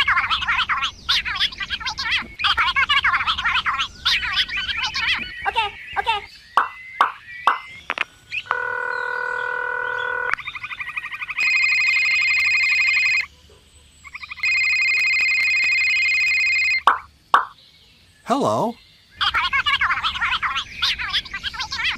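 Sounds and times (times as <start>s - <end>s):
short electronic blips: 6.6s - 7.7s, 16.8s - 17.6s
high steady ringing tone: 11.4s - 13.3s, 14.4s - 17.1s.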